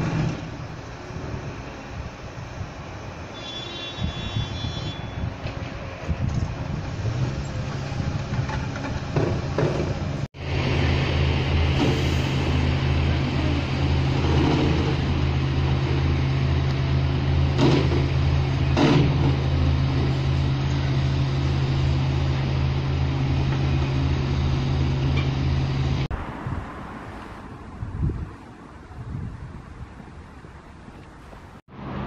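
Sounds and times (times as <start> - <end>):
diesel engine droning: 4.4 - 26.4.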